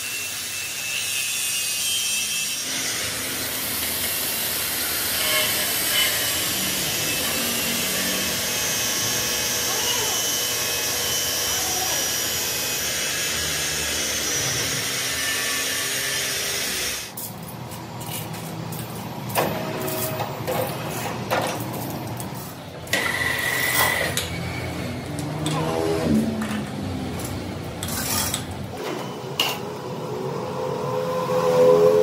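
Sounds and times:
power tool working metal: 0:00.0 - 0:17.2, 0:22.9 - 0:26.6
knocks and clanks: 0:19.3 - 0:22.2.

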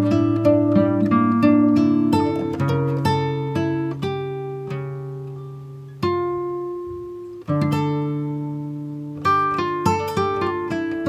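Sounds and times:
plucked acoustic guitar: 0:00.0 - 0:11.0.

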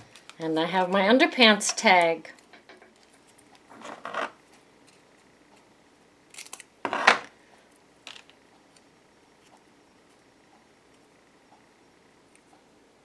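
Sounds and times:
label tape rustling: 0:02.0 - 0:07.1.

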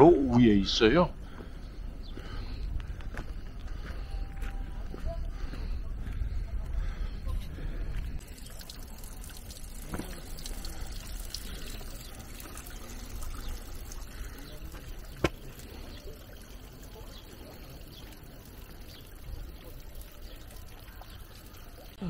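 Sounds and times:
water pouring into stone trough: 0:08.2 - 0:22.0.

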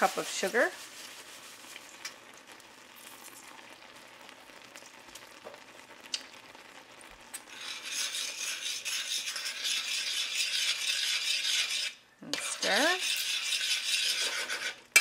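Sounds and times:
berries sizzling in a pot: 0:00.0 - 0:15.0
metal spoon scraping a pot: 0:07.4 - 0:15.0.

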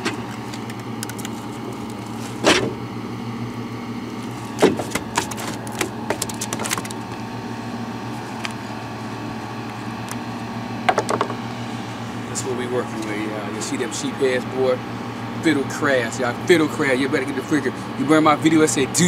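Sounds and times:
fish slapping on wooden planks: 0:00.0 - 0:02.8, 0:04.5 - 0:07.1
steady low hum: 0:00.0 - 0:19.0.

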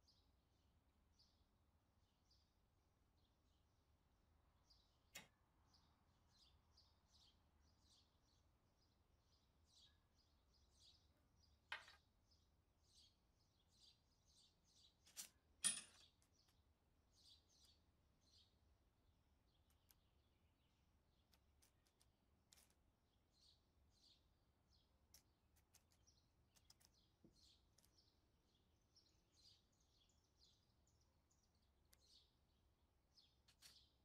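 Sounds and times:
faint bird chirping: 0:00.0 - 0:34.0
small clicks of tools: 0:05.1 - 0:05.4, 0:15.1 - 0:16.6, 0:19.6 - 0:20.1, 0:21.2 - 0:22.8, 0:25.1 - 0:28.1, 0:33.4 - 0:33.9.

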